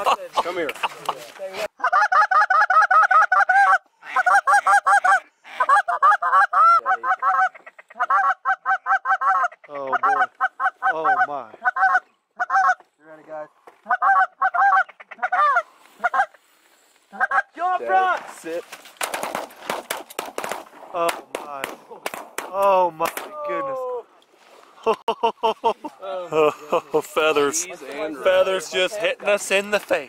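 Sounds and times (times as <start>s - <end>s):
waterfowl honking: 1.8s - 12.9s, 13.8s - 17.6s.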